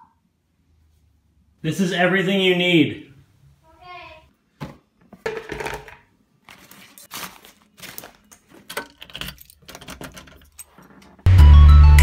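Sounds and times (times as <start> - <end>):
rustling and clattering: 4.6 - 11.3
keys jangling: 9.0 - 11.1.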